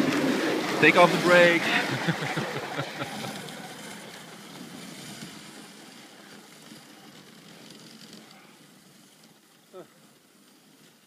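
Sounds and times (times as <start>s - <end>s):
sled runners and paws hissing on snow: 0.0s - 11.0s.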